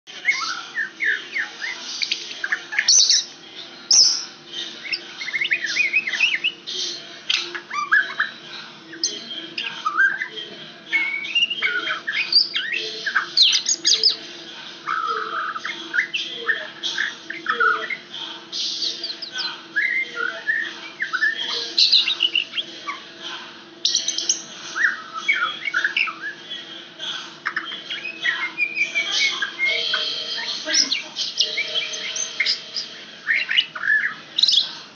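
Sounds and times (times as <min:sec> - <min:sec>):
bird singing whistled notes: 0:11.0 - 0:14.2.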